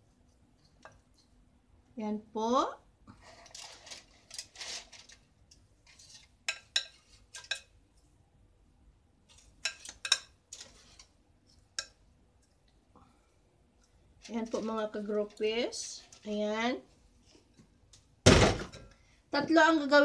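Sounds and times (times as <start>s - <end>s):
aluminium foil rustling: 3.2s - 6.3s.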